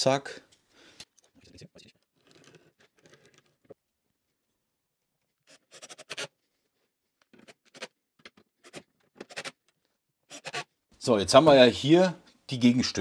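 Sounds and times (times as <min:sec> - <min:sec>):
pencil scratching on wood: 0:05.4 - 0:06.4, 0:10.3 - 0:10.7.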